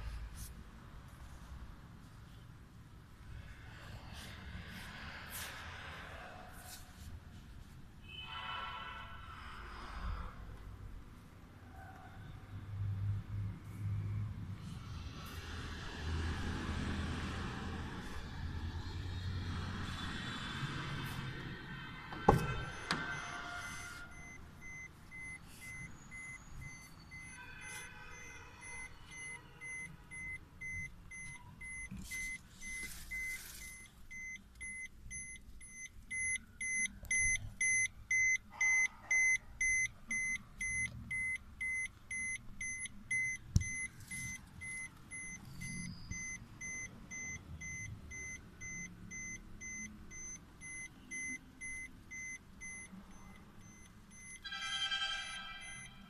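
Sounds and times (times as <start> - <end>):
car warning chime beeping: 22.1 - 56.0.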